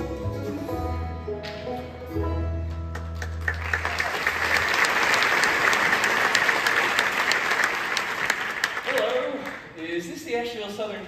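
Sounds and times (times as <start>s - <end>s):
bluegrass band playing: 0.0s - 6.4s
audience applause: 2.9s - 9.8s.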